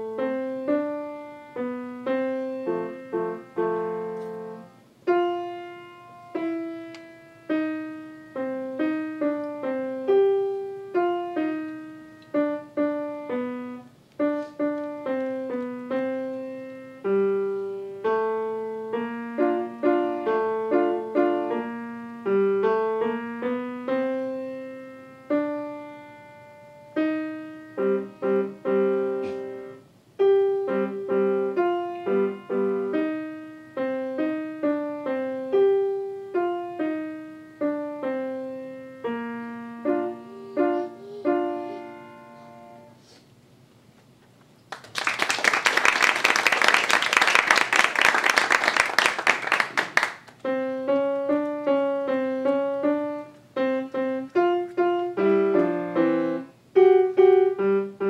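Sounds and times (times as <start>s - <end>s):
grand piano playing: 0.0s - 43.0s, 46.4s - 58.0s
audience applauding: 44.7s - 50.4s.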